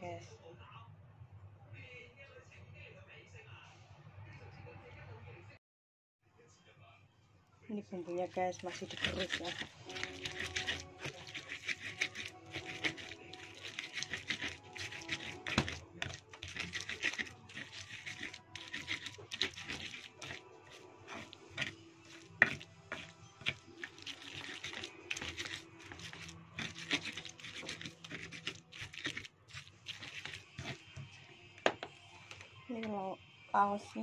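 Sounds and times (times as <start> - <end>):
stone pestle grinding in mortar: 8.2 - 31.0
stone knocking on stone: 8.8 - 20.4.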